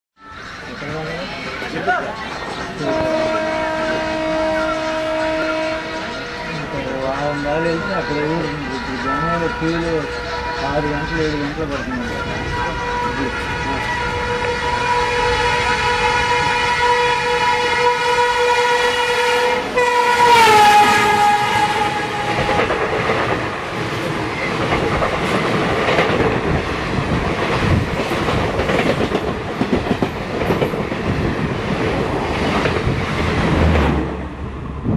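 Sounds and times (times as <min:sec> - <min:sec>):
locomotive horn: 0:02.8 - 0:23.1
train wheels clattering over rails: 0:21.0 - 0:34.3.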